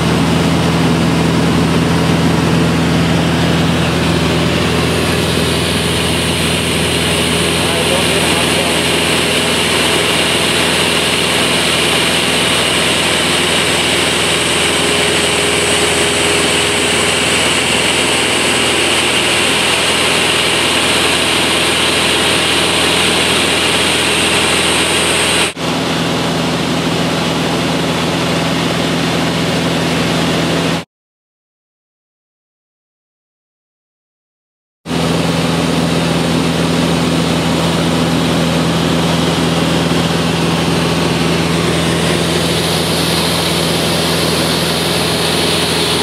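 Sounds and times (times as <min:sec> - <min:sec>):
propeller aircraft engine drone: 0:00.0 - 0:30.8, 0:34.9 - 0:46.0.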